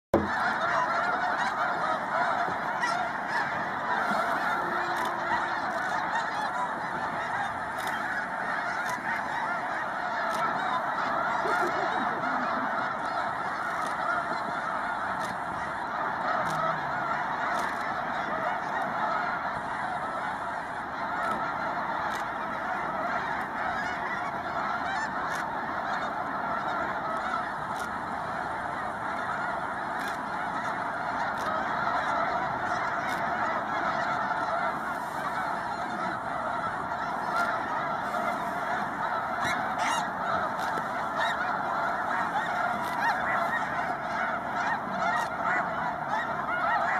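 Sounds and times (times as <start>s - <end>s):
geese honking: 0.2s - 46.9s.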